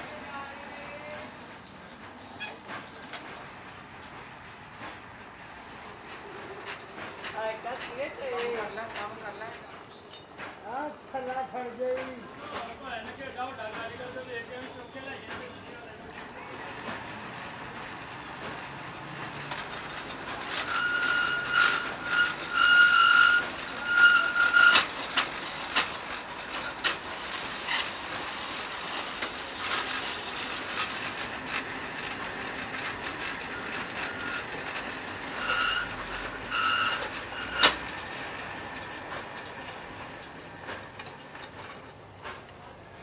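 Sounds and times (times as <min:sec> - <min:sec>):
wire-coiling machine rattling: 0:12.5 - 0:43.0
high squeals: 0:20.6 - 0:24.9, 0:35.2 - 0:37.8.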